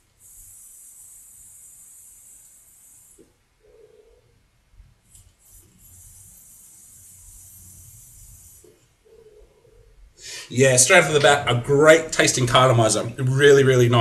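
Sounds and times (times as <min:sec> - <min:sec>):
faint airy hiss of vaping: 0:00.0 - 0:04.2, 0:05.0 - 0:09.0, 0:10.2 - 0:11.2
soft exhale of vapour: 0:10.2 - 0:10.5.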